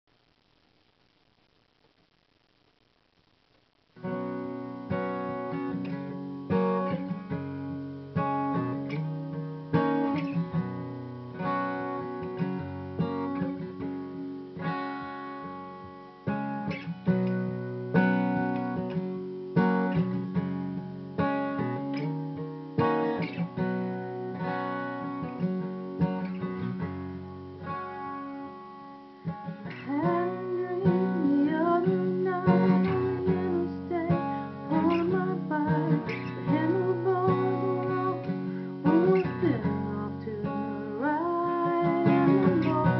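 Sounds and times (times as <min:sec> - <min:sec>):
acoustic guitar strumming chords: 0:04.0 - 0:42.9
woman singing: 0:29.7 - 0:42.9.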